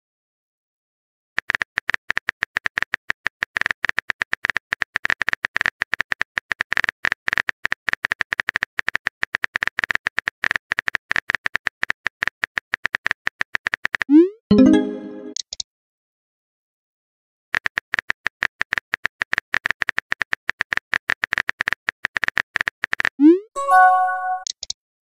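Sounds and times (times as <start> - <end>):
keyboard clicks: 12.8 - 15.6, 17.6 - 24.8.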